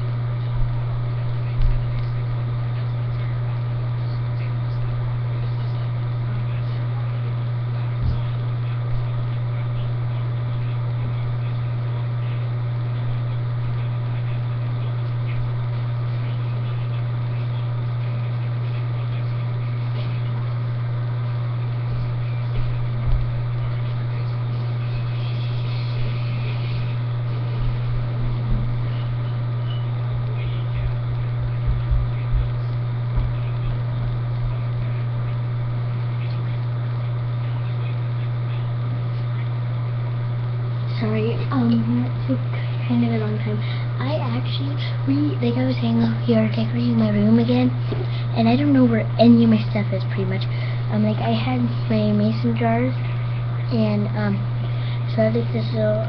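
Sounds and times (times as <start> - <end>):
steady low hum: 0.0 - 56.0
dull low thumps: 30.8 - 34.6.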